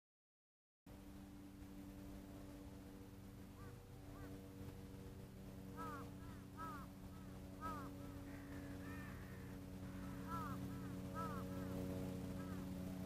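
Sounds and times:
faint low machine hum: 0.9s - 13.0s
bird calling in arched notes: 3.5s - 4.5s, 5.6s - 13.0s.

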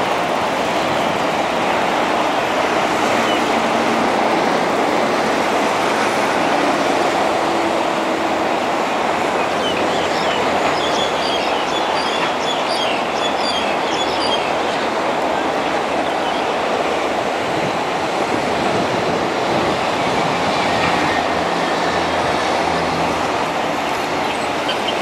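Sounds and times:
electric train rumbling on track: 0.0s - 25.0s.

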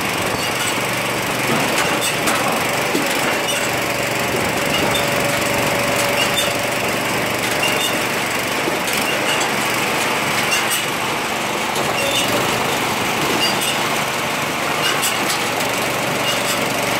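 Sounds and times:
small petrol engine running: 0.0s - 16.9s
wood clattering onto conveyor: 0.3s - 11.0s.

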